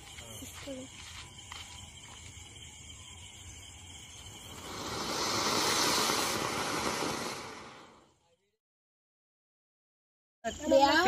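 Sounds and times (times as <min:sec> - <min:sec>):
firework spraying sparks hissing: 0:00.0 - 0:08.1.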